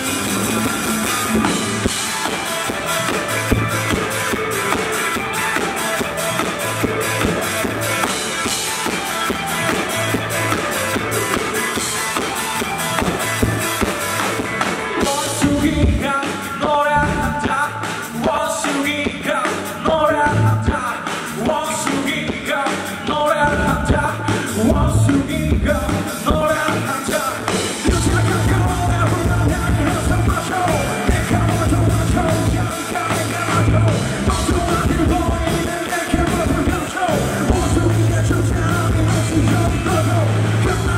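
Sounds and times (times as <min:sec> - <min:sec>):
bass guitar: 0:00.0 - 0:40.9
drum kit: 0:00.0 - 0:40.9
electric guitars: 0:00.0 - 0:40.9
sung vocals: 0:14.9 - 0:40.9.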